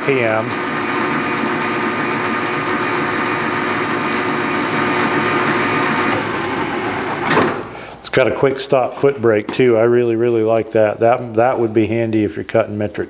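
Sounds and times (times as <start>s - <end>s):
metal lathe humming: 0.0s - 7.8s.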